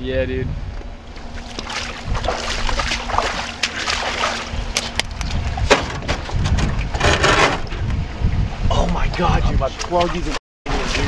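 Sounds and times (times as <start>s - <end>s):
wind rumble on microphone: 0.0s - 11.0s
gear knocking and rattling on boat deck: 1.2s - 8.0s.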